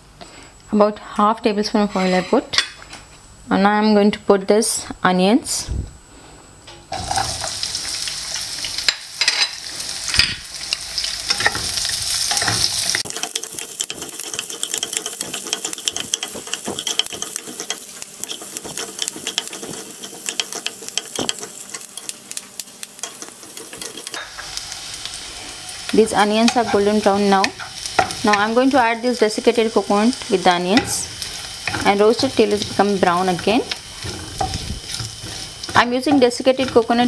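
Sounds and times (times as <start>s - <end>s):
wooden spatula scraping a pan: 1.8s - 2.5s, 12.3s - 21.9s, 30.8s - 37.0s
onions sizzling in hot oil: 6.9s - 37.0s.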